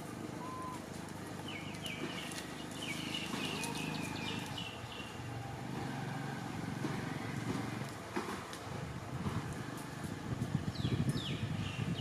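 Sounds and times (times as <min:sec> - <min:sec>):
high chirping animal calls: 0:00.4 - 0:00.8.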